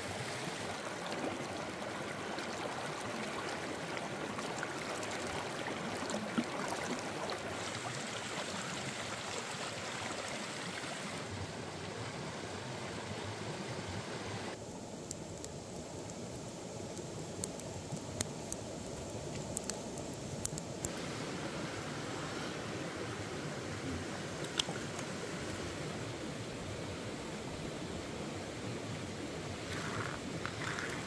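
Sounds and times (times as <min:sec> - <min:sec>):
stream running over rocks: 0:00.0 - 0:31.0.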